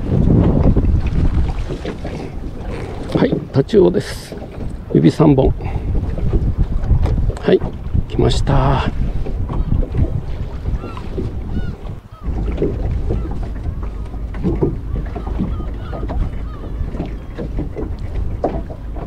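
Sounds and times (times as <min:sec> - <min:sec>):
water sloshing around boat: 0:00.0 - 0:19.0
wind on microphone: 0:00.0 - 0:19.0
irregular knocks: 0:12.2 - 0:19.0.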